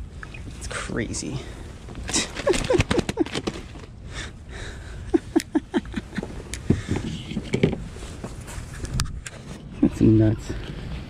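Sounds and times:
breathy excited laughter: 0:02.1 - 0:07.0.

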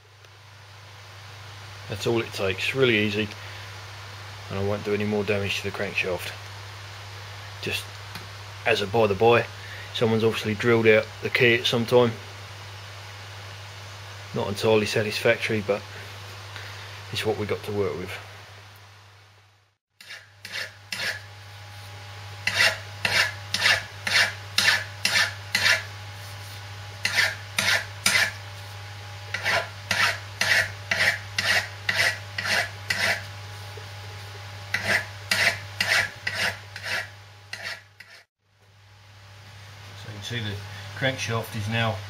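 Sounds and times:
file rasping on steel: 0:20.0 - 0:21.3, 0:22.4 - 0:25.9, 0:27.0 - 0:28.4, 0:29.3 - 0:33.3, 0:34.7 - 0:38.3.

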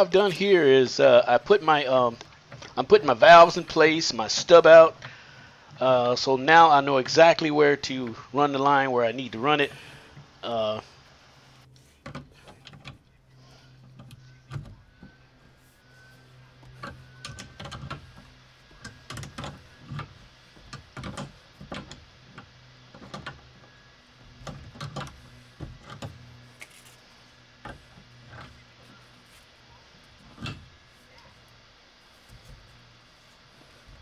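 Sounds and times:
faint low hum: 0:00.0 - 0:34.0
wrench clicking and knocking on metal: 0:16.8 - 0:23.4.

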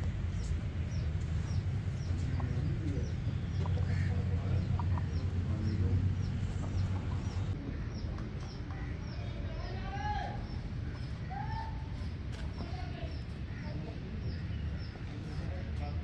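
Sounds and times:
steady low hum: 0:00.0 - 0:08.2
chickens clucking: 0:00.4 - 0:09.2.

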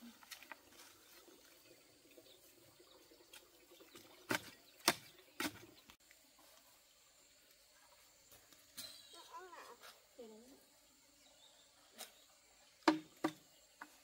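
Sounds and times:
faint outdoor background: 0:00.0 - 0:14.0.

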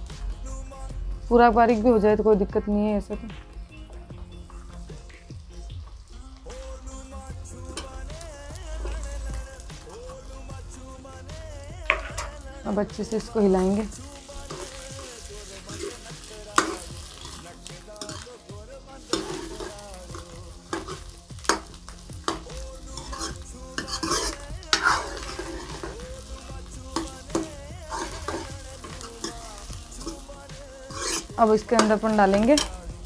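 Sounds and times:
oil sizzling: 0:00.0 - 0:33.0
ladle scraping a pan: 0:19.1 - 0:26.2, 0:26.9 - 0:32.8.

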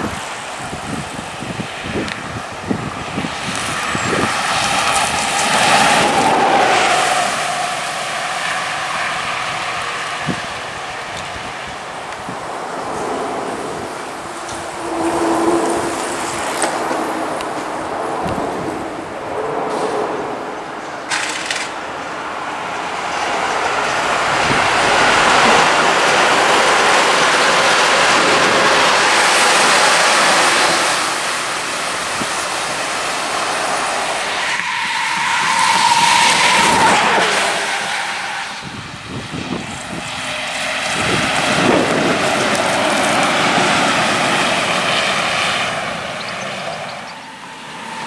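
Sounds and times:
bus passing: 0:00.0 - 0:48.0
vehicle noise: 0:00.0 - 0:48.0.

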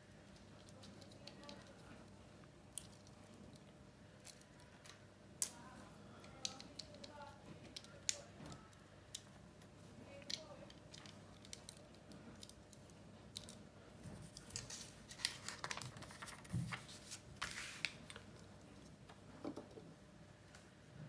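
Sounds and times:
paper page rustle: 0:14.2 - 0:18.3.

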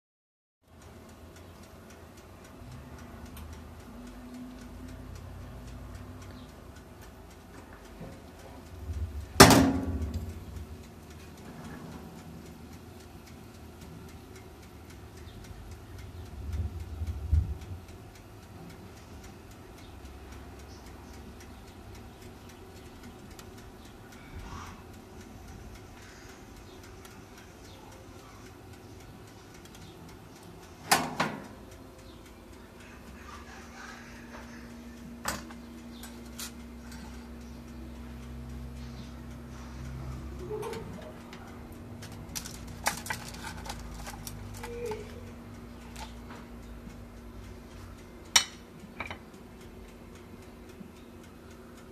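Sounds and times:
toaster oven ticking and crackling: 0:00.6 - 0:51.9
low steady hum: 0:00.7 - 0:51.9
metal tongs clicking on tray: 0:42.0 - 0:45.2.

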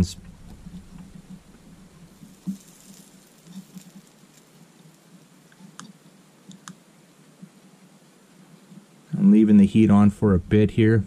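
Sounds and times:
soldering flux sizzling: 0:00.4 - 0:09.0
light ticks: 0:02.4 - 0:06.8.

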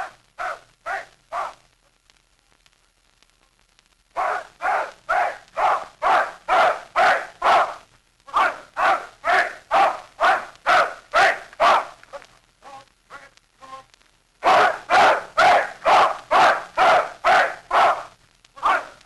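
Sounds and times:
dog barking: 0:00.0 - 0:01.6, 0:04.2 - 0:12.0, 0:14.4 - 0:19.0.

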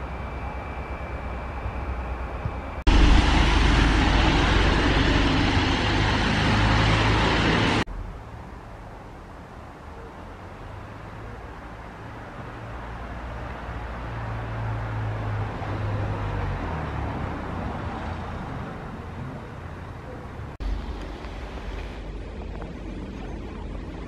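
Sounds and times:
diesel locomotive engine running: 0:00.0 - 0:07.9.

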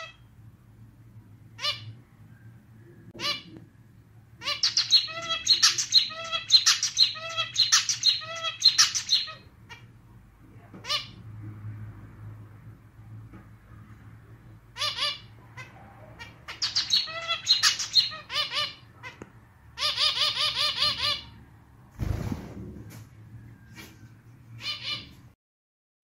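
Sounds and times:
finch singing: 0:04.4 - 0:09.9, 0:14.8 - 0:19.2.

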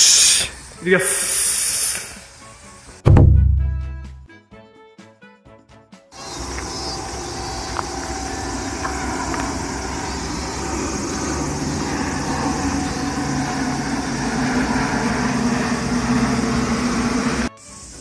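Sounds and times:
low engine-like hum: 0:06.2 - 0:17.5
outdoor rushing noise: 0:06.2 - 0:17.5.

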